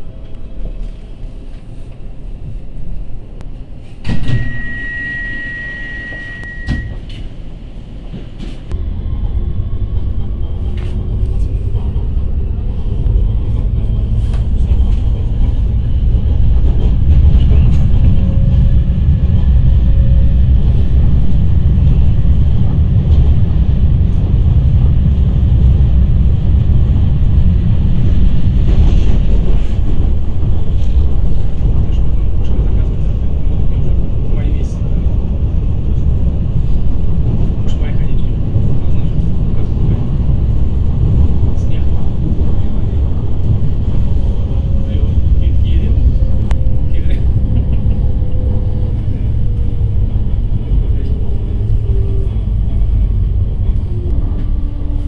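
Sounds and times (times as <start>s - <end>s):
train wheels rumbling on track: 0.0s - 55.0s
high steady tone: 4.1s - 7.1s.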